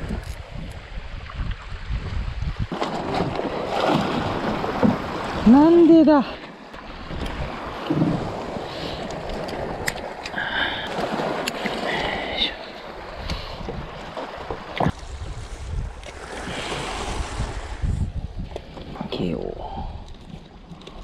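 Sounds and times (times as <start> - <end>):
wind buffeting microphone: 0.0 - 6.3, 6.9 - 10.2, 13.0 - 20.4
lapping sea water: 2.7 - 17.8.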